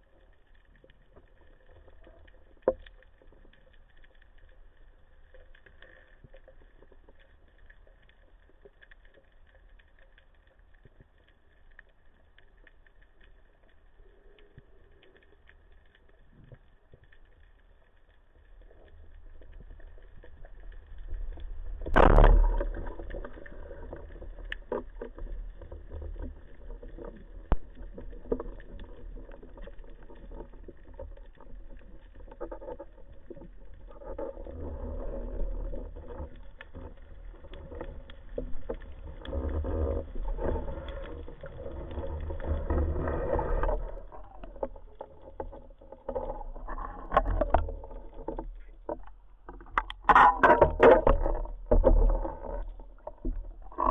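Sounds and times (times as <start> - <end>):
faint crackling clicks: 0.0 - 53.9
underwater rumble: 0.0 - 53.9
water swishing: 12.0 - 53.9.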